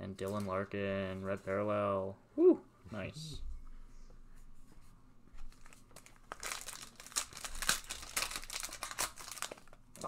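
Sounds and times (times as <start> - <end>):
wrapper crinkling and tearing: 5.5 - 10.0.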